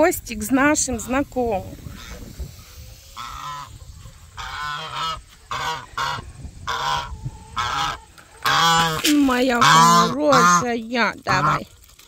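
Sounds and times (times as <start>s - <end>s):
goose honking: 3.0s - 11.7s.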